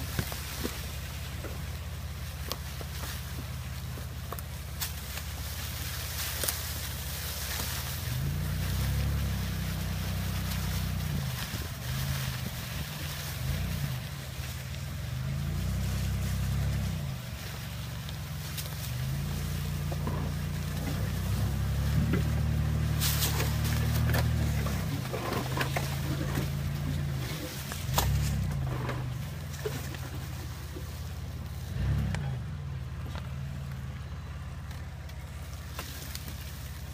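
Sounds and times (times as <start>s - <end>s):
off-road vehicle engine revving: 0.0s - 36.9s.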